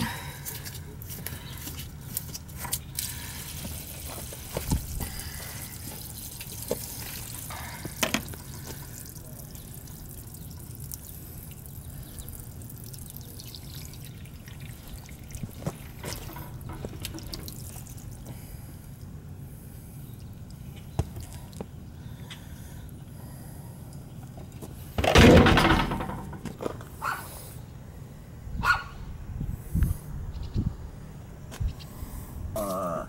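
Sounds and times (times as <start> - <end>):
water splashing onto pavement: 2.1 - 18.4
drain valve clicks and knocks: 15.7 - 17.6.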